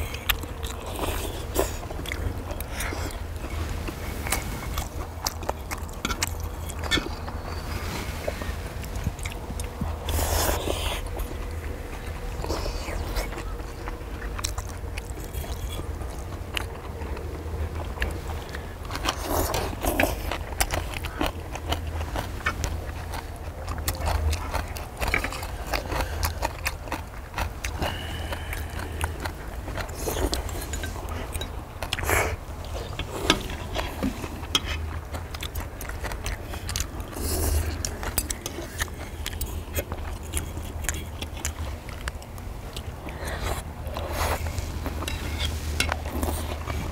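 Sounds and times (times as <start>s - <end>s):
people chewing and eating: 0.0s - 46.9s
steady low rumble: 0.0s - 46.9s.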